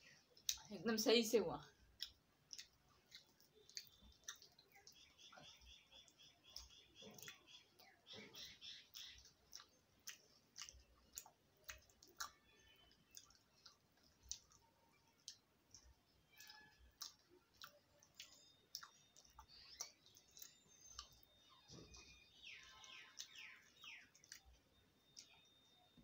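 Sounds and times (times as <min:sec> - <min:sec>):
person chewing wet clicks: 0:00.0 - 0:00.7, 0:01.6 - 0:26.0.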